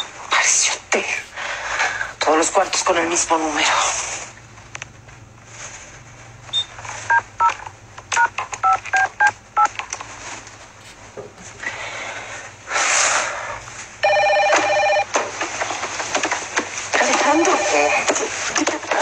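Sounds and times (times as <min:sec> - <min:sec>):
telephone keypad beeps: 0:08.2 - 0:09.7, 0:14.0 - 0:15.1.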